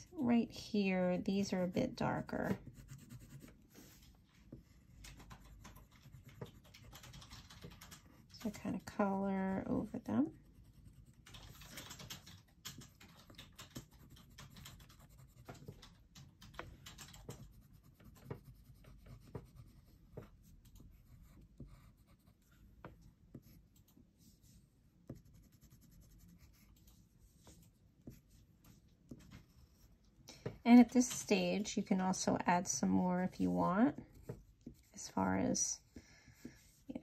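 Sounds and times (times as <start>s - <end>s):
pencil scratching on paper: 0.0s - 7.0s, 7.6s - 11.7s, 12.8s - 15.8s, 16.6s - 30.0s.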